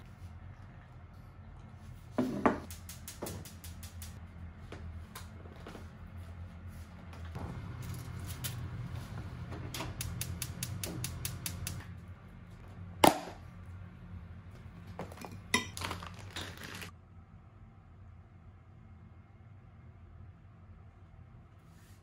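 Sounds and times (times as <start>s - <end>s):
steady low hum: 0.0s - 15.8s
dishes and utensils clinking: 15.0s - 16.9s
sharp ceramic clink: 15.3s - 15.8s.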